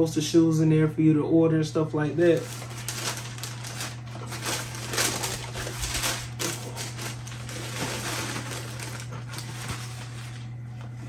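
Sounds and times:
steady low hum: 0:00.0 - 0:11.0
paper rustling and crinkling: 0:02.3 - 0:11.0.

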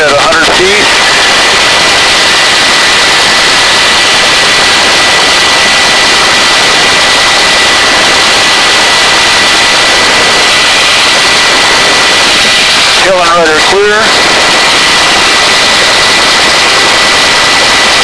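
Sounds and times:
helicopter hovering: 0:00.0 - 0:18.0.

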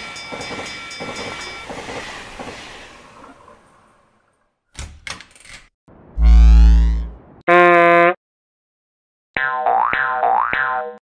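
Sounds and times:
crossing warning bell ringing: 0:00.0 - 0:01.8
cartoon train clattering: 0:00.0 - 0:02.8.

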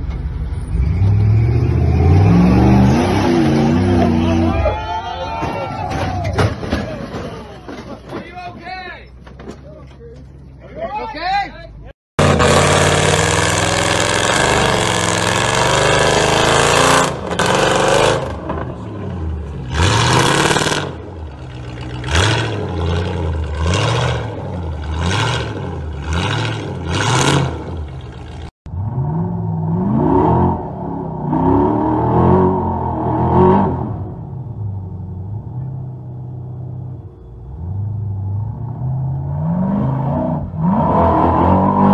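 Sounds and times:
off-road vehicle engine revving: 0:00.6 - 0:04.8, 0:12.2 - 0:34.4, 0:35.3 - 0:41.9
buggy engine revving in bursts: 0:00.7 - 0:04.5, 0:12.2 - 0:34.2, 0:38.1 - 0:41.9.

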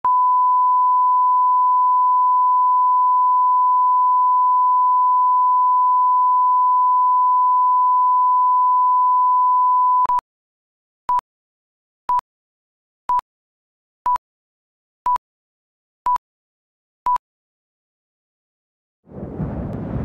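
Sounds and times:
steady sine tone: 0:00.0 - 0:10.1.

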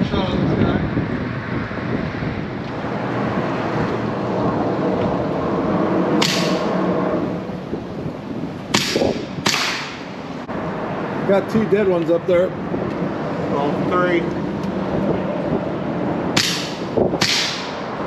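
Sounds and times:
steady low rumble: 0:00.0 - 0:18.0
air rifle shots echoing: 0:08.7 - 0:10.1, 0:16.4 - 0:17.8.

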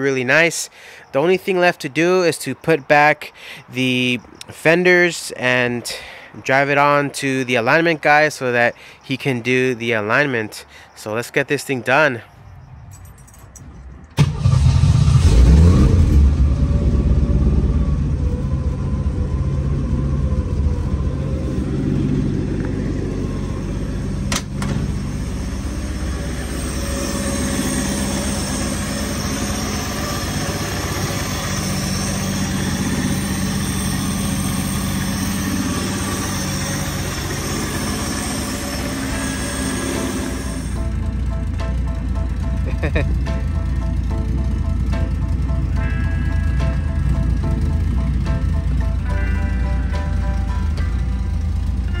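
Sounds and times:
car engine revving then idling: 0:14.2 - 0:52.0.

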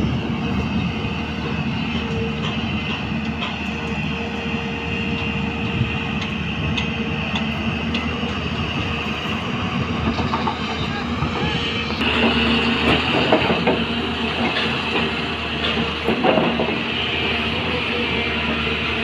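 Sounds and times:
excavator diesel engine whining: 0:00.0 - 0:19.0
excavator digging soil: 0:12.0 - 0:19.0.

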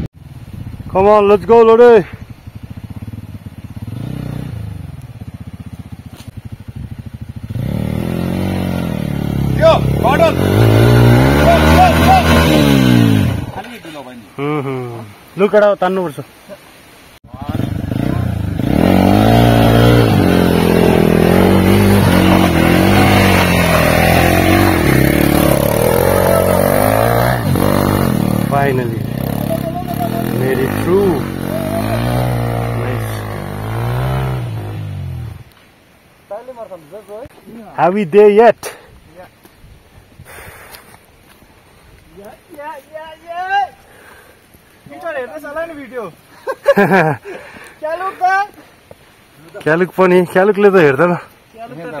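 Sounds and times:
motorcycle engine running: 0:02.0 - 0:13.4, 0:17.3 - 0:35.3.

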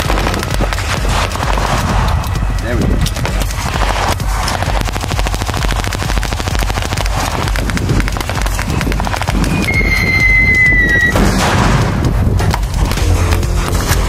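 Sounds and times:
rapid rifle gunfire: 0:00.0 - 0:13.9.

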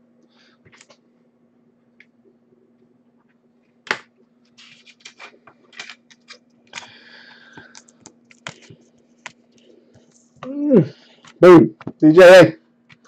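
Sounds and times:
faint low hum: 0:00.0 - 0:13.0
cards clicking scraping and rustling: 0:03.9 - 0:10.4.

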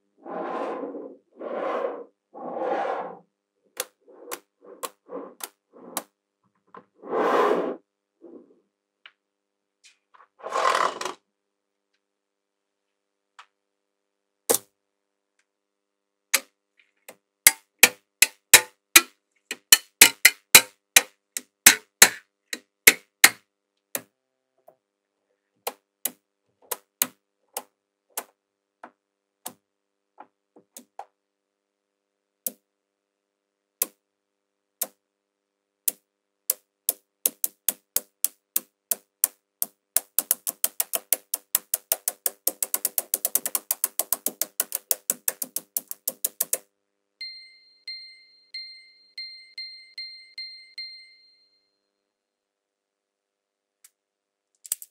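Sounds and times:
magnetic balls clicking together: 0:35.9 - 0:46.6, 0:54.6 - 0:54.9.

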